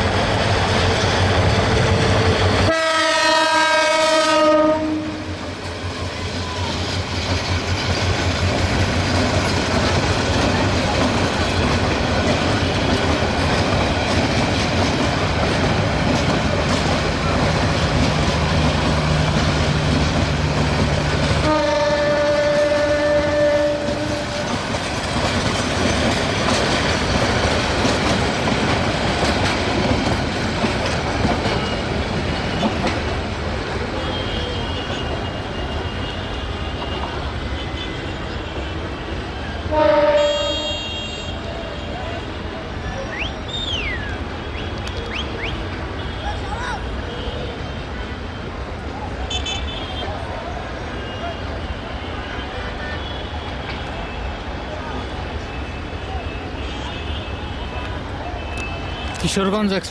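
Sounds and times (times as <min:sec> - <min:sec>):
diesel locomotive engine droning: 0:00.0 - 0:59.9
train coaches clickety-clack: 0:00.0 - 0:59.9
train horn: 0:02.6 - 0:05.4, 0:21.4 - 0:24.7, 0:33.9 - 0:42.4, 0:49.3 - 0:50.2, 0:55.0 - 0:59.2.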